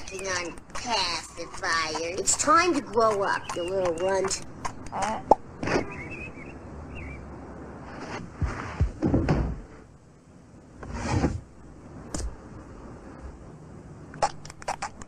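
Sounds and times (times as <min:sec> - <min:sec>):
drawer sliding open: 0:10.8 - 0:11.4.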